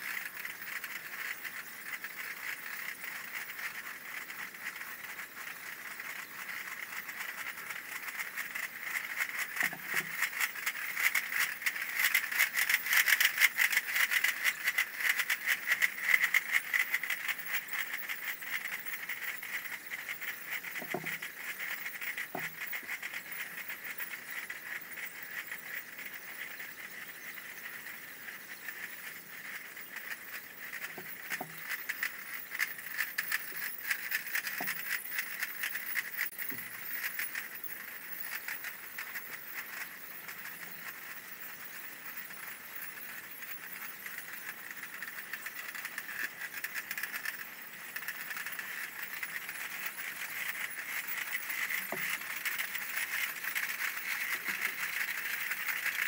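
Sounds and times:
snare drum rattle: 6.1s - 24.3s, 29.9s - 37.4s, 45.0s - 56.0s.

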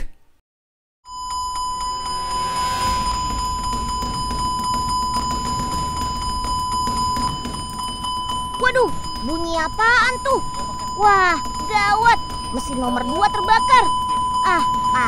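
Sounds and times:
high alarm tone: 1.1s - 15.0s
low rumble: 1.3s - 9.5s.

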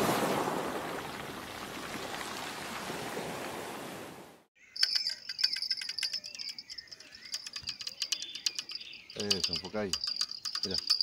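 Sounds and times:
surf washing over pebbles: 0.0s - 4.1s
bird chirps: 4.6s - 11.0s
rapid insect ticking: 4.8s - 11.0s.

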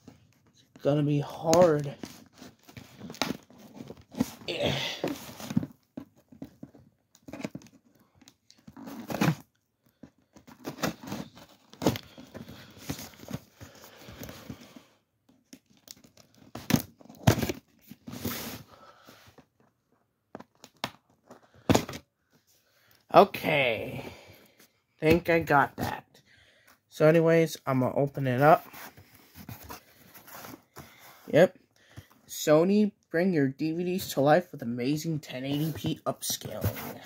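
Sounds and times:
cardboard tearing: 10.4s - 14.3s.

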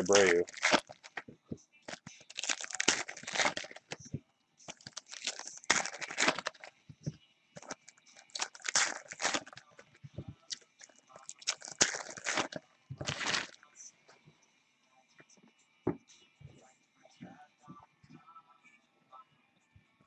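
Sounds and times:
foil wrappers tearing and crinkling: 0.0s - 1.2s, 1.9s - 4.0s, 4.7s - 6.7s, 7.6s - 9.8s, 11.2s - 13.6s.

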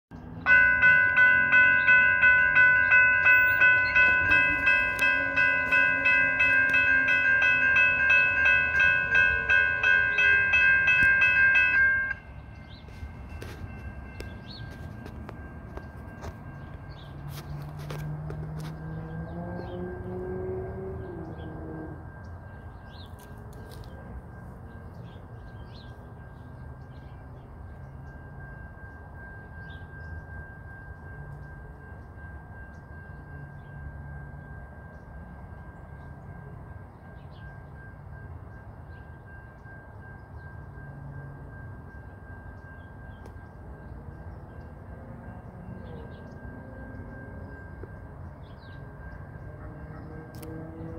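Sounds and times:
birds chirping: 0.2s - 18.0s
railroad crossing bell ringing: 0.2s - 50.9s.

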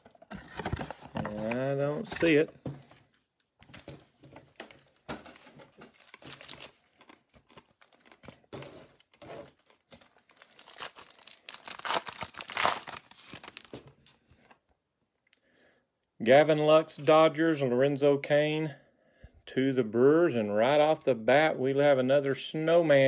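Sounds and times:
foil wrappers crinkling: 5.9s - 8.5s, 9.6s - 13.9s
foil pack tearing open: 10.2s - 13.8s.

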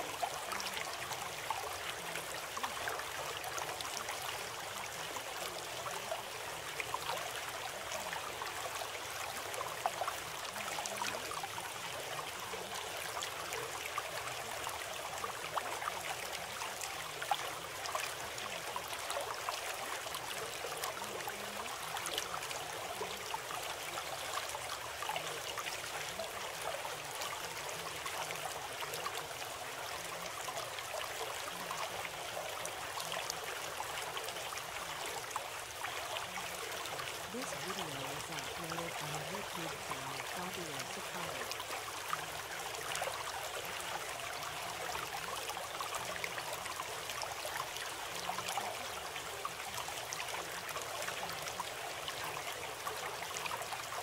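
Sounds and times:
water babbling in a stream: 0.0s - 54.0s.

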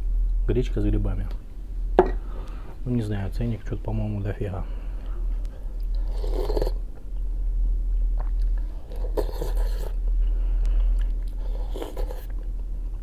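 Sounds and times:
steady low hum: 0.0s - 13.0s
person chewing food: 5.4s - 12.7s.

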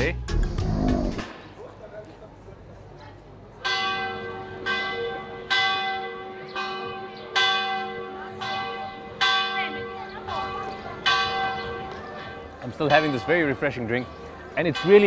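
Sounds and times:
church bells tolling: 3.6s - 15.0s.

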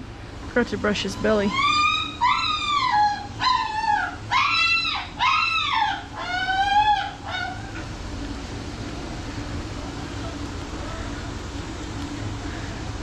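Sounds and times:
dog howling and whining: 1.2s - 7.9s.

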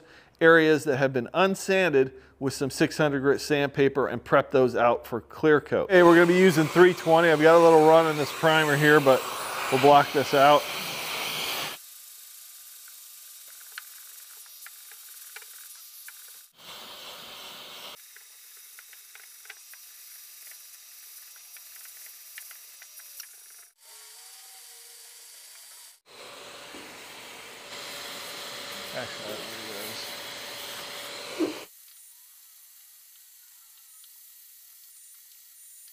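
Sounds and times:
vacuum suction: 5.9s - 11.8s, 26.1s - 31.7s
sandpaper rubbing: 6.0s - 11.8s, 12.7s - 25.8s.

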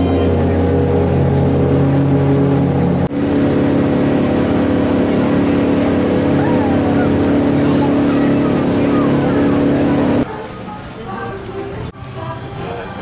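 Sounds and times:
boat engine running: 0.0s - 10.2s.

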